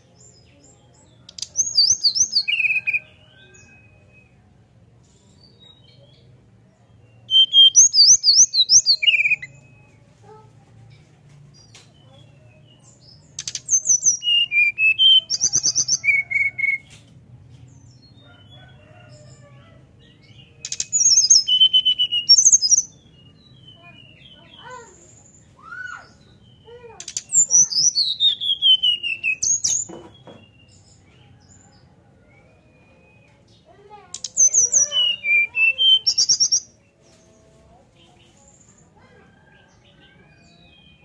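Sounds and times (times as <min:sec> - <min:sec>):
bird singing flute-like whistles: 0:07.3 - 0:09.9, 0:20.7 - 0:22.8.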